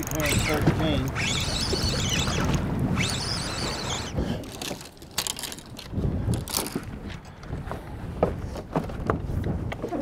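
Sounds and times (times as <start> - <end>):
knocks and clicks on boat: 0.0 - 3.1, 4.4 - 10.0
wind: 0.0 - 10.0.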